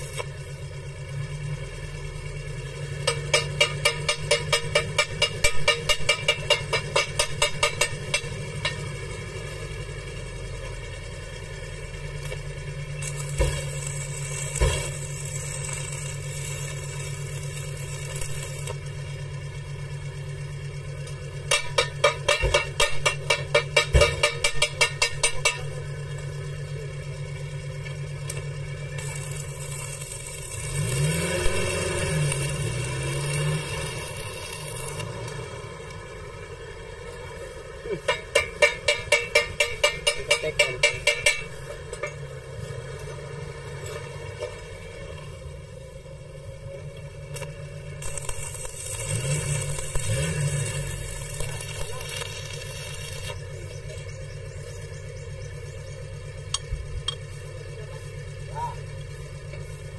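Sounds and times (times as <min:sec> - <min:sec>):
welding arc crackling: 0:00.0 - 0:00.6, 0:02.8 - 0:08.8, 0:12.1 - 0:19.3, 0:28.0 - 0:36.1, 0:37.9 - 0:41.7, 0:47.2 - 0:54.3
low engine hum: 0:00.0 - 0:59.9
rapid tapping on steel: 0:03.0 - 0:08.9, 0:21.5 - 0:25.9, 0:38.1 - 0:42.2.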